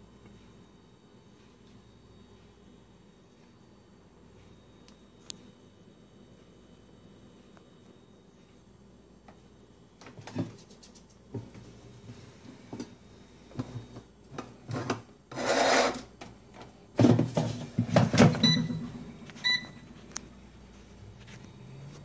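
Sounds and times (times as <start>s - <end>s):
short electronic beeps: 18.4s - 19.8s.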